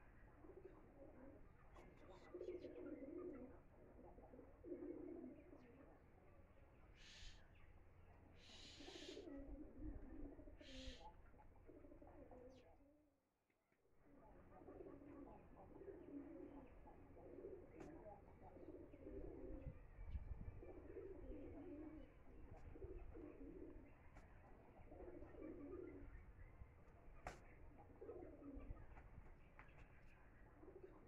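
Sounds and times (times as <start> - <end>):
pigeon cooing: 0.4 - 6.0, 8.4 - 12.8, 14.5 - 26.6, 27.2 - 29.3, 30.4 - 31.0.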